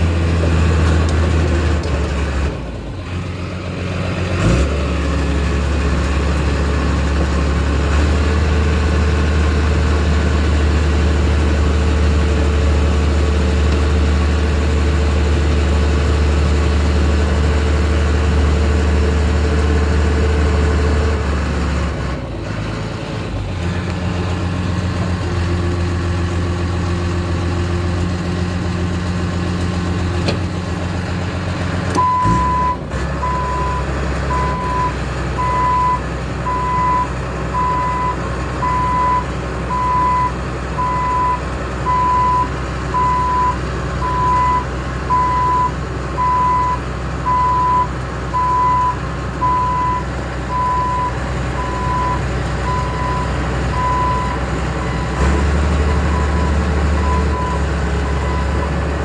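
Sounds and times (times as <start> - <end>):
diesel engine running: 0.0 - 59.0
reverse alarm beeping: 32.0 - 55.2, 56.1 - 58.6.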